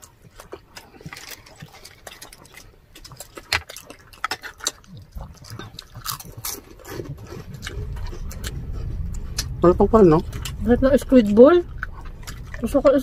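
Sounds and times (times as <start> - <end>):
chewing with mouth smacks: 0.0 - 13.0
low rumble: 5.1 - 13.0.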